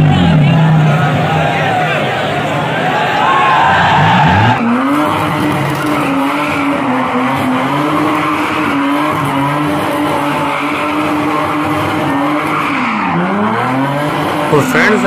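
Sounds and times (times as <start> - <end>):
car engine at high revs: 0.0 - 2.7, 3.6 - 15.0
tyres squealing on tarmac: 10.0 - 13.6.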